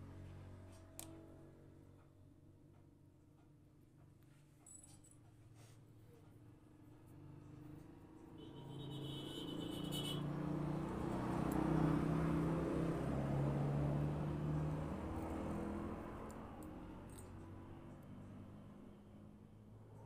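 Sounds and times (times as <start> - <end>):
vehicle engine passing by: 6.9 - 20.0.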